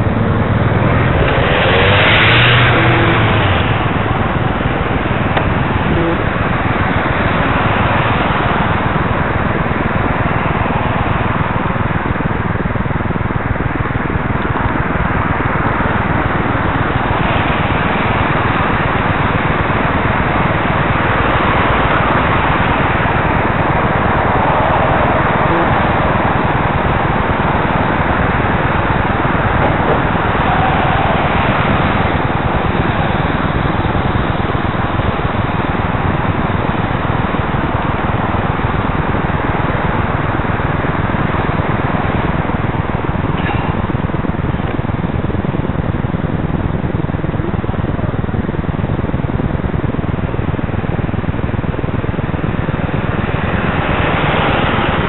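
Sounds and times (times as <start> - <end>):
car passing: 0.0 - 12.4, 15.7 - 44.0
road noise: 0.0 - 55.0
rushing wind: 0.0 - 55.0
traffic: 0.0 - 55.0.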